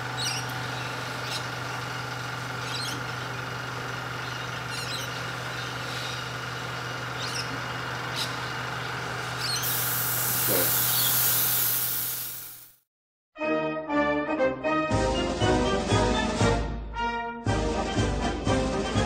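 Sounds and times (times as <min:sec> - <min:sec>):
compressor humming: 0:00.0 - 0:12.8
airbrush spray hiss: 0:09.6 - 0:12.8.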